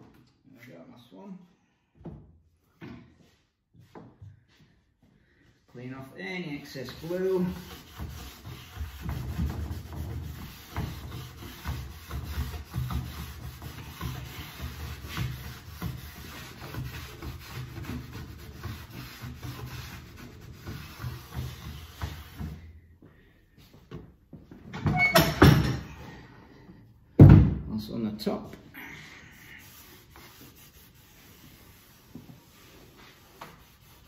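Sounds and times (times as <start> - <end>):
cloth rag rubbing on wood: 6.4 - 22.6, 29.3 - 34.0.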